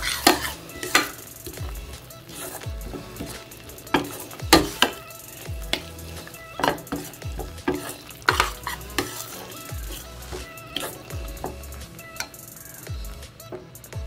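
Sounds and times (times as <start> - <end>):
spoon knocking against pan: 0.0 - 1.7, 2.4 - 11.6
spoon scraping metal pan: 0.0 - 12.8
low sizzle: 0.0 - 14.0.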